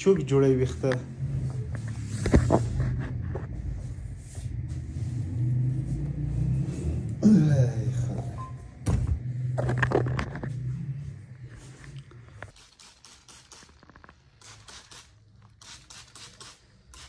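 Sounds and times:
steady low hum: 0.0 - 12.5
phone handling rumble: 8.8 - 10.7.

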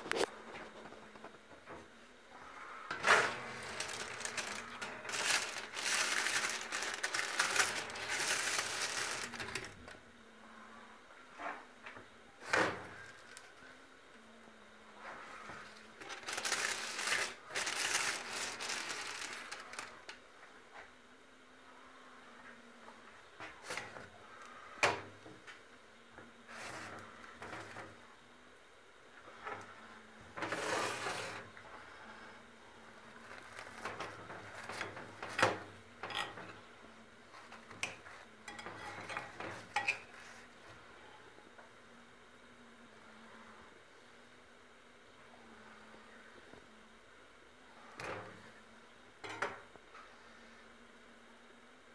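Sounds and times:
faint steady hum: 0.0 - 51.9
wrapping crinkling and rustling: 2.9 - 10.0, 15.7 - 20.2, 33.0 - 36.4.

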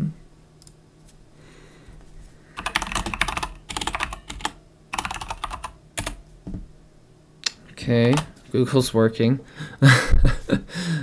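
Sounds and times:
keyboard typing: 2.6 - 6.2, 8.0 - 8.3.

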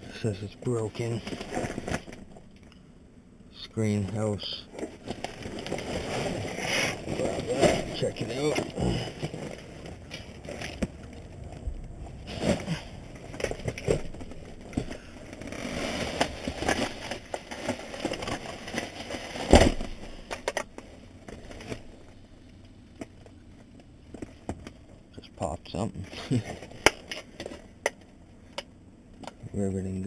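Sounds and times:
plastic bags rustling: 0.2 - 2.5, 4.0 - 22.1
items knocking and scraping: 4.0 - 22.1.

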